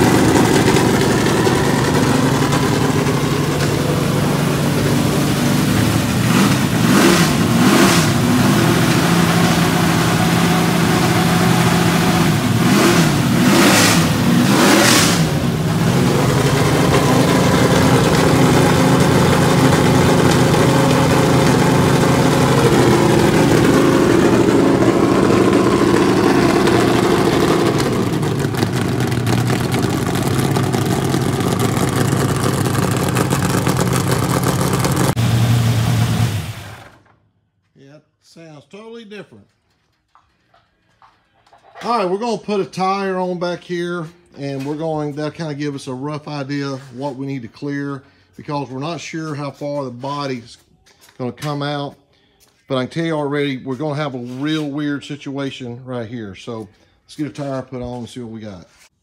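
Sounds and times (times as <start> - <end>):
race car engine revving and idling: 0.0 - 37.1, 44.5 - 47.2.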